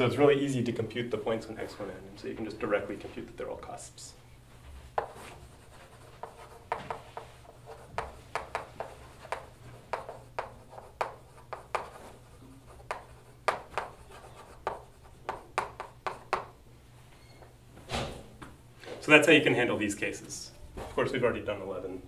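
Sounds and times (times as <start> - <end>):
chalk tapping and scratching on blackboard: 4.7 - 16.6.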